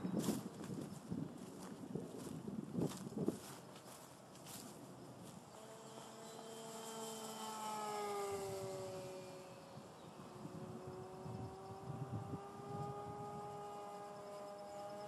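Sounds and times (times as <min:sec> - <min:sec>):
model plane motor whining: 0:04.3 - 0:15.0.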